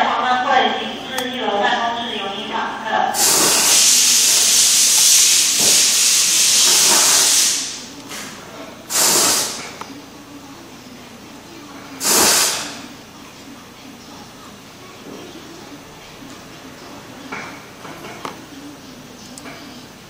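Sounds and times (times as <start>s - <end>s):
compressed air hissing: 3.1s - 9.8s, 12.0s - 12.9s.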